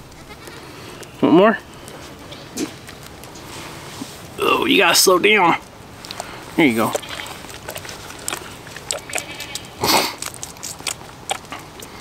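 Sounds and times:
goat kid sucking at bottle: 6.1 - 12.0.

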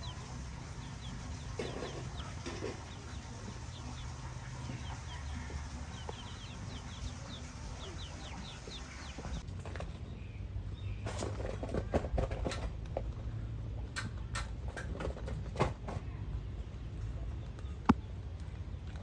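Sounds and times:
chickens clucking: 0.0 - 9.4
steady low hum: 0.0 - 9.5.

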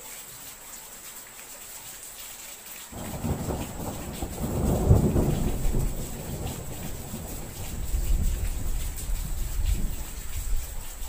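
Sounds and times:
rain hiss: 0.0 - 11.0
thunder rumbling: 3.0 - 10.7.

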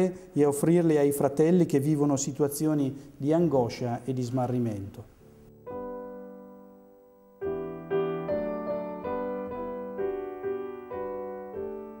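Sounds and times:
piano music: 3.6 - 12.0.

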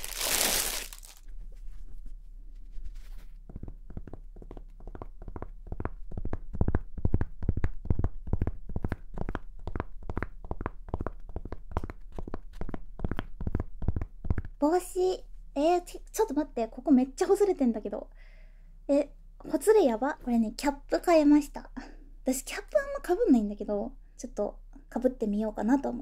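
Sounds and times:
plastic bag crinkling: 0.0 - 1.3.

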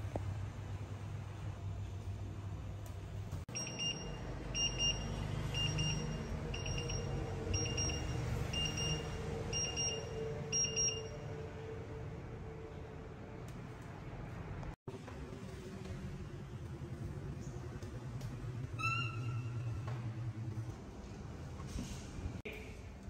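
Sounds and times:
timer alarm beeping: 3.5 - 11.3.

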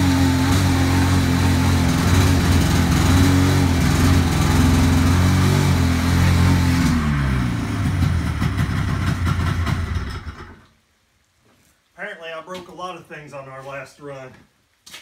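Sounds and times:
snowmobile engine revving: 0.0 - 10.3.

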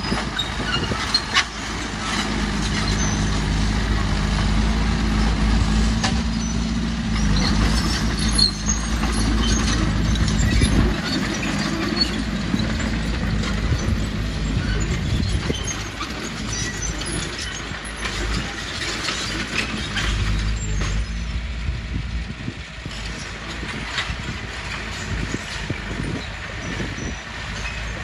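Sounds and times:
knocks and clatter: 0.0 - 21.3
diesel machinery running: 0.0 - 28.0.

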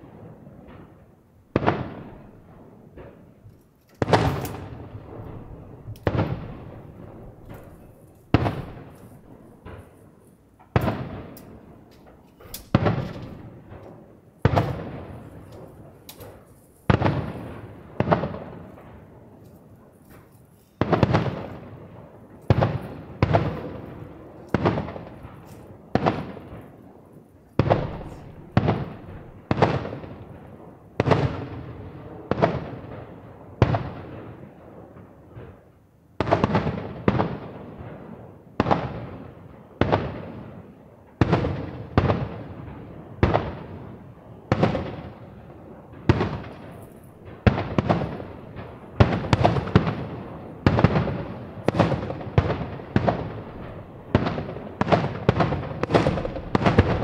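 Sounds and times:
firework shells bursting: 1.6 - 21.8, 46.0 - 57.0
echoing rumble: 27.6 - 29.6, 55.4 - 57.0.

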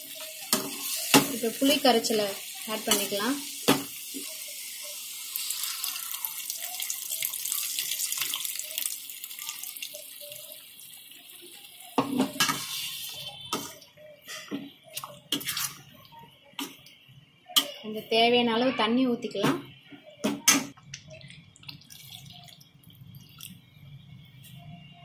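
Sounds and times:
liquid pouring into sizzling pan: 0.0 - 13.2
spoon stirring and knocking pan: 0.1 - 1.6.

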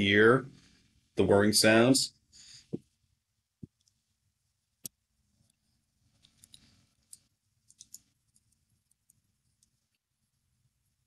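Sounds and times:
small ticks and rustles: 5.4 - 10.0.

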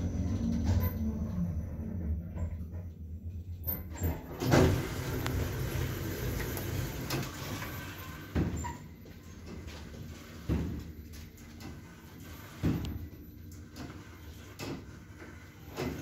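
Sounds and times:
lift humming: 0.0 - 8.3
sliding doors opening with rattle: 0.0 - 16.0.

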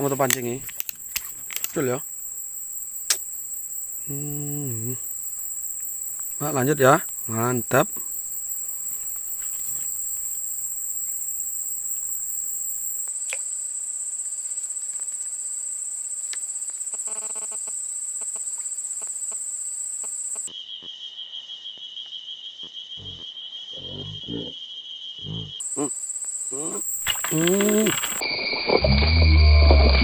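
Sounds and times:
insects trilling: 0.0 - 30.0.

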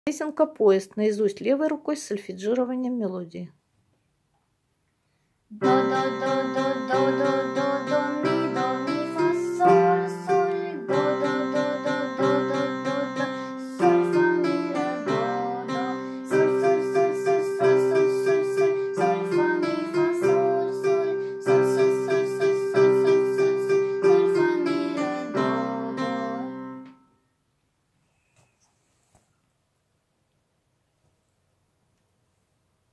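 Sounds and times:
child singing: 5.5 - 26.9
electronic keyboard tune: 5.6 - 27.0.

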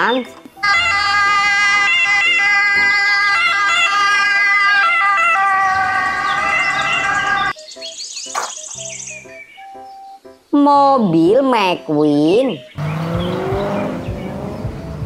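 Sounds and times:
ambulance siren wailing: 0.6 - 7.6.

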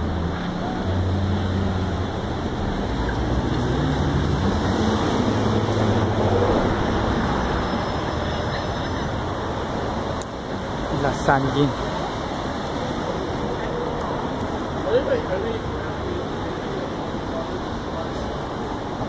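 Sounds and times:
traffic engine hum: 0.0 - 19.0.

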